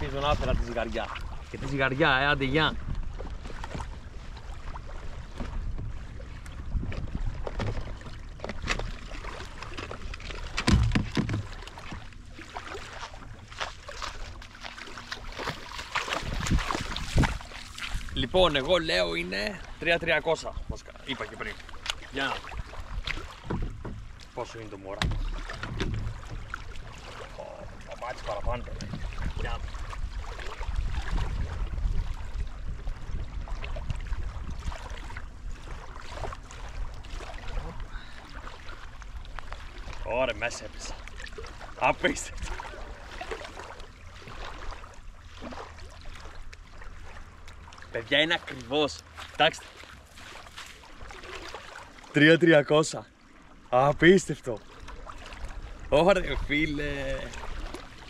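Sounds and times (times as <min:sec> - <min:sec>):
wind buffeting microphone: 0:00.0 - 0:09.0, 0:15.4 - 0:21.4, 0:24.9 - 0:39.6
water splashing against hull: 0:00.0 - 0:58.0
small knocks and rustles: 0:05.3 - 0:09.0, 0:09.6 - 0:12.2, 0:23.4 - 0:24.3, 0:25.0 - 0:26.6
heavy thump: 0:10.6 - 0:11.5.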